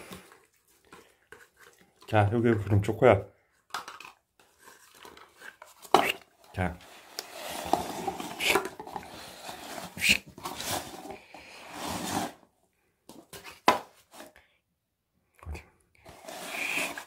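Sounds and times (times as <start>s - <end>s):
paper cups scraping on wooden floor: 4.4s - 12.5s, 16.0s - 17.0s.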